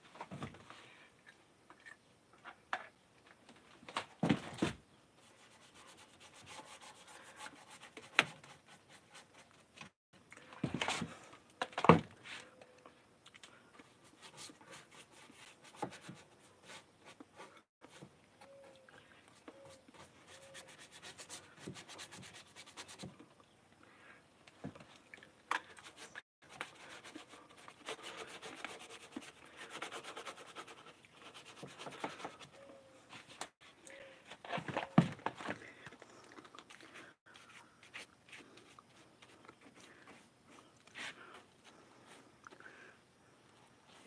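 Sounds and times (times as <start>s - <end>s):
paintbrush scratching on wood: 19.7s - 23.0s, 25.8s - 32.6s.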